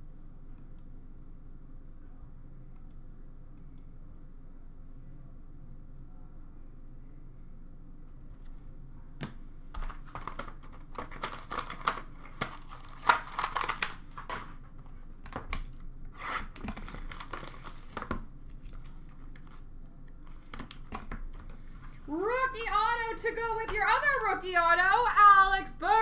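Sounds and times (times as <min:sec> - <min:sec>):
plastic packaging crinkling: 0:09.8 - 0:19.7.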